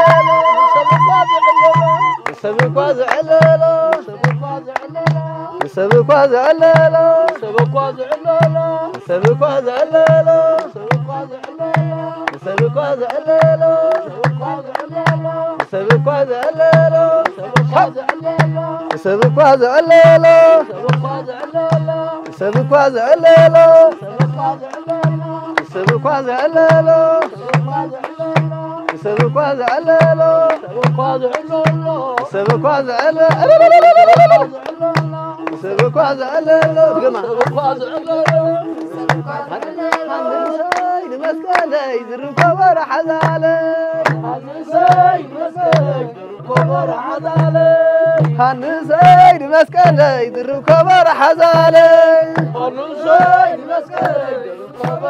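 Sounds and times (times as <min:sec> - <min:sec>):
low drum beat: 0:00.0 - 0:40.1, 0:42.4 - 0:55.0
people singing: 0:00.0 - 0:55.0.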